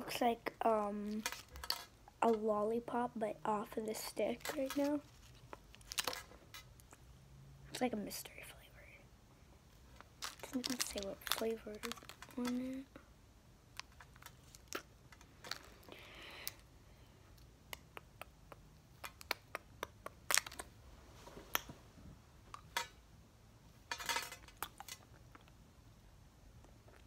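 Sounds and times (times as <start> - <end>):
hard candy clicking against teeth: 17.4 - 20.7.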